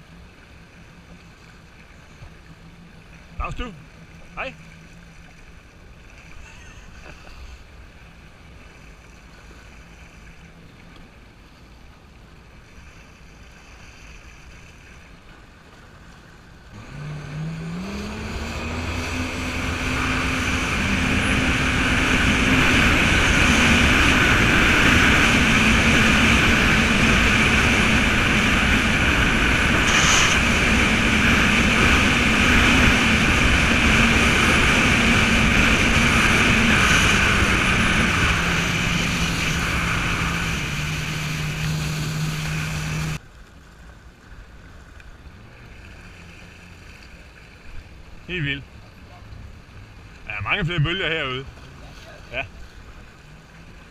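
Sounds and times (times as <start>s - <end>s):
jet ski engine: 0.0s - 53.9s
wind: 0.0s - 53.9s
water spray rushing: 16.7s - 43.2s.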